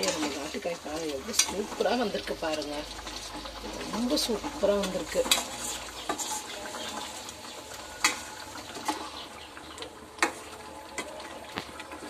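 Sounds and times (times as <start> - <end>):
ladle stirring thick gravy: 0.0 - 12.0.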